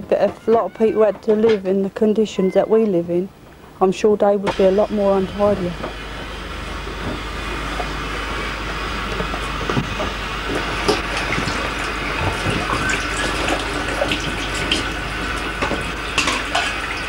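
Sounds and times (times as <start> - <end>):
tap water running into sink: 9.2 - 17.0.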